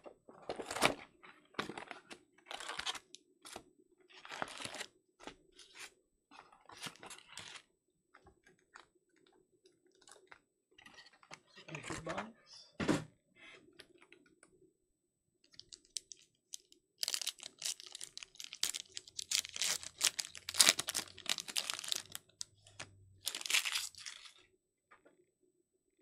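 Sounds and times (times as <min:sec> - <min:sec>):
foil wrapper crinkling and tearing: 0:15.6 - 0:24.4.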